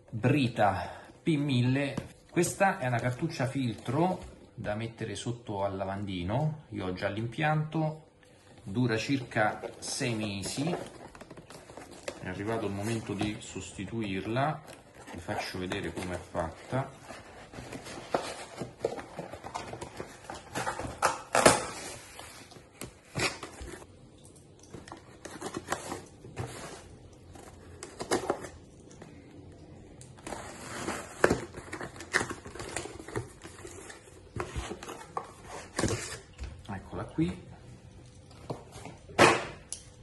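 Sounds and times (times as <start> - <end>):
cardboard scraping and rustling: 9.0 - 23.9, 25.0 - 28.5, 30.2 - 36.3.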